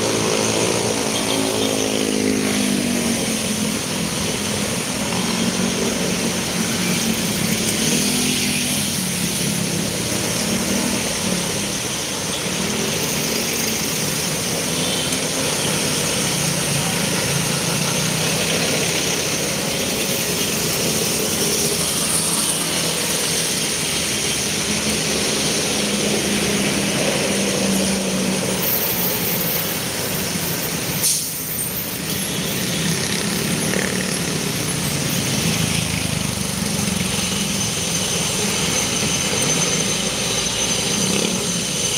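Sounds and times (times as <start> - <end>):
road traffic engines: 0.0 - 41.9
rush of riding bike: 0.0 - 41.9.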